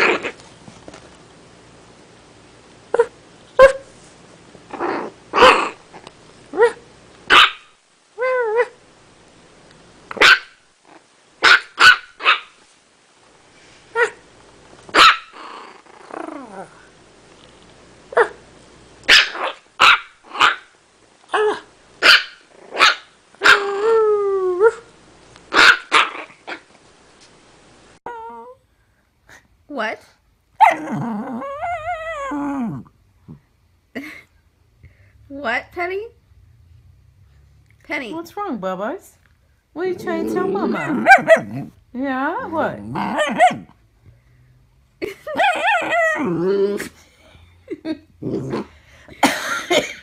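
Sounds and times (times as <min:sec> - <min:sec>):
puppy yelping: 0:06.5 - 0:08.8, 0:15.0 - 0:16.5, 0:19.1 - 0:20.7, 0:21.3 - 0:24.0, 0:25.5 - 0:26.7, 0:30.6 - 0:32.6, 0:40.0 - 0:41.8, 0:42.5 - 0:43.7, 0:45.3 - 0:46.8
puppy yapping: 0:06.6 - 0:08.8, 0:10.2 - 0:10.6, 0:11.4 - 0:12.6, 0:14.9 - 0:15.6, 0:19.1 - 0:20.7, 0:21.3 - 0:23.8, 0:25.5 - 0:26.7, 0:30.6 - 0:32.4, 0:40.1 - 0:41.7, 0:43.0 - 0:43.8.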